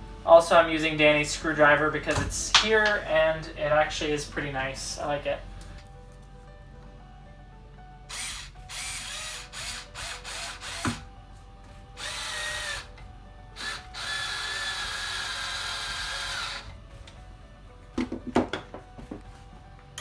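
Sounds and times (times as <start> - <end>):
cordless power screwdriver driving screws: 8.1 - 11.0.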